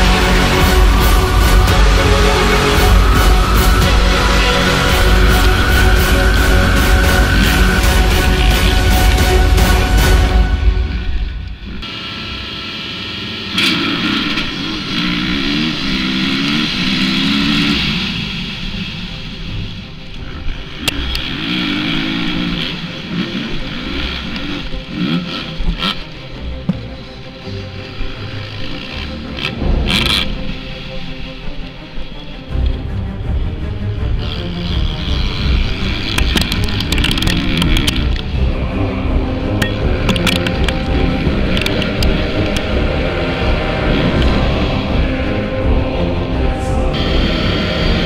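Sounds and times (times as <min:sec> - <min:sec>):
motocross bike revving: 0:00.0 - 0:31.4, 0:34.1 - 0:48.0
pack of motorbike engines: 0:00.0 - 0:48.0
sharp clicks: 0:36.1 - 0:38.3, 0:39.6 - 0:42.7.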